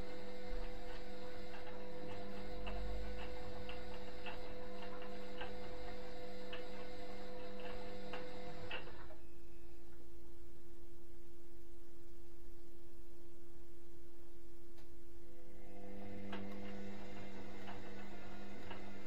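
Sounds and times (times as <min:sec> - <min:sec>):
washing machine motor humming: 0:00.0 - 0:09.3, 0:15.1 - 0:19.0
faint steady hum: 0:00.0 - 0:19.0
regular clicking: 0:00.4 - 0:09.2, 0:16.0 - 0:19.0.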